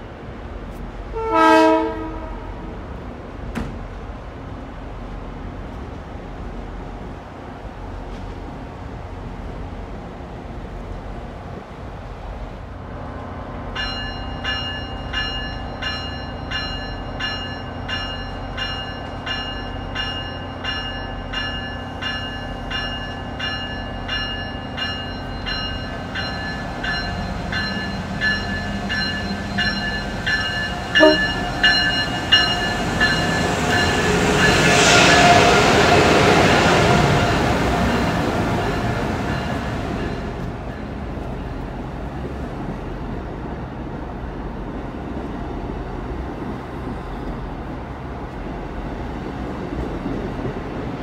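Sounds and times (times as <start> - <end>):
train passing rush: 0.0 - 51.0
train bell ringing: 13.8 - 35.8, 36.4 - 41.8.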